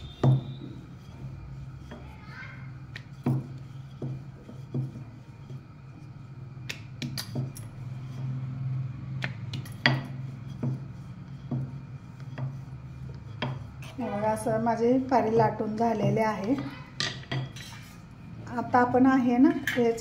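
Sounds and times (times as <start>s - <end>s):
steady low hum: 0.0s - 20.0s
rolling pin knocking on marble: 9.2s - 13.6s.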